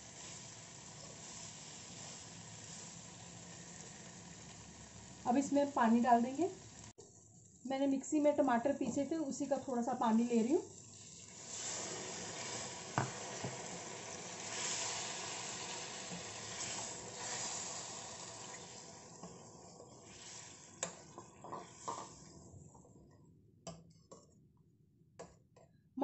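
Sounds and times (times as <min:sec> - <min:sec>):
water pouring into pan: 0:10.7 - 0:20.8.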